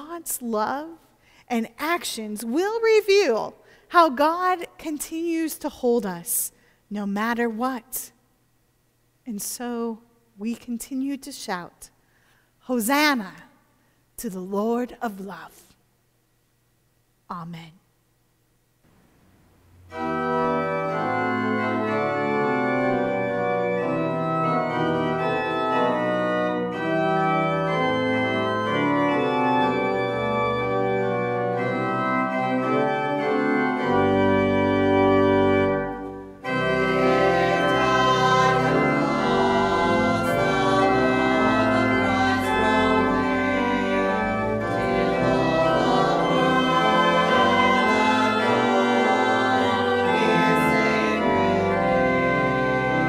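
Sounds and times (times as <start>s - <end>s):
organ playing chords: 19.6s - 53.0s
voices singing a hymn: 36.5s - 53.0s.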